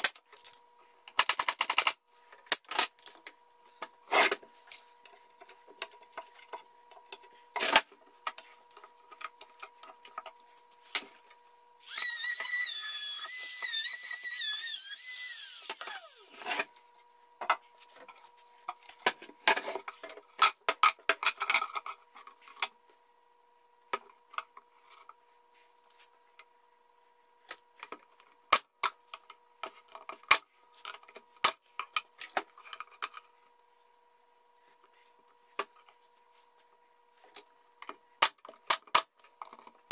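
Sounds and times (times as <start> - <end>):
power tool whining: 11.8 - 16.5.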